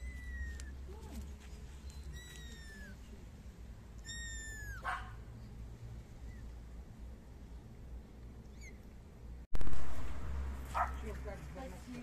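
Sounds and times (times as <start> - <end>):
kitten mewing: 0.0 - 1.3, 2.1 - 3.2, 4.0 - 5.2.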